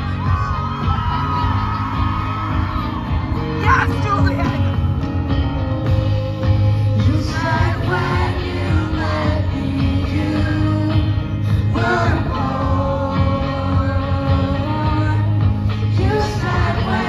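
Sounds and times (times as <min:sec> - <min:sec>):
bass guitar: 0:00.0 - 0:17.0
live rock band: 0:00.0 - 0:17.0
woman singing: 0:15.9 - 0:17.0.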